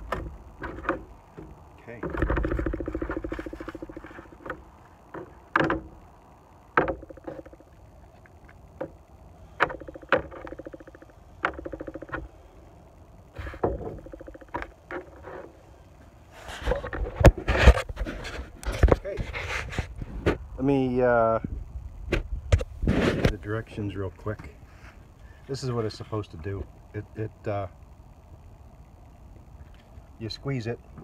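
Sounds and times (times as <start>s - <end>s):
fast rasping rattle: 0.0s - 6.0s, 6.8s - 7.8s, 9.6s - 12.4s, 13.3s - 15.6s
plastic clicks and knocks: 9.6s - 12.3s, 13.5s - 15.3s.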